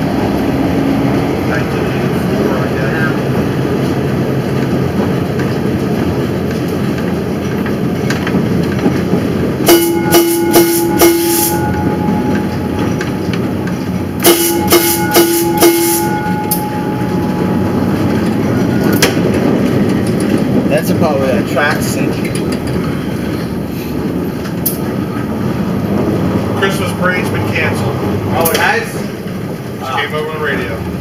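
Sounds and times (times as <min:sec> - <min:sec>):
streetcar wheels rumbling: 0:00.0 - 0:31.0
streetcar gong ringing: 0:08.3 - 0:31.0.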